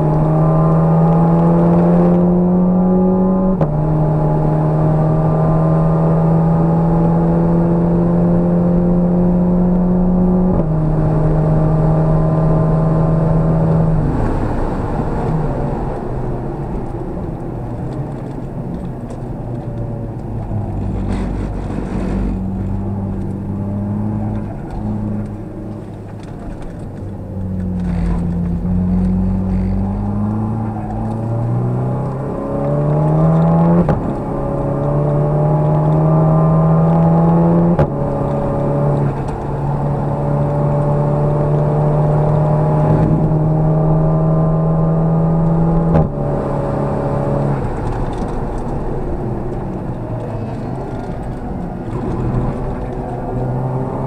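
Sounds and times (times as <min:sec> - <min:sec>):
car engine revving: 0:00.0 - 0:54.0
road noise: 0:00.0 - 0:54.0.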